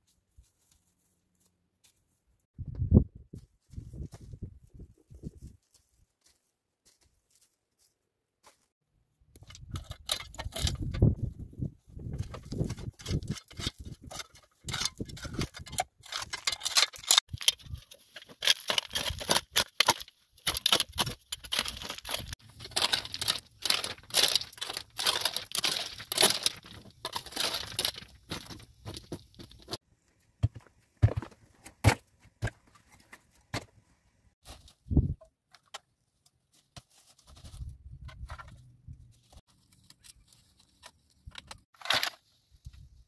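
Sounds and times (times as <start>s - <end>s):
hands scraping dry stony soil: 9.4s - 29.8s.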